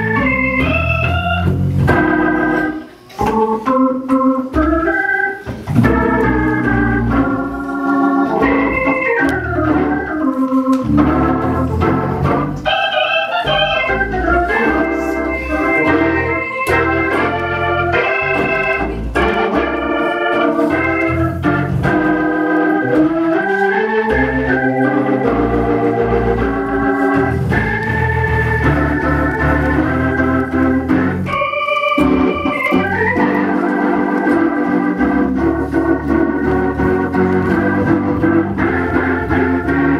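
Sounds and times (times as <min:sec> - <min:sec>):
organ music: 0:00.0 - 0:39.9.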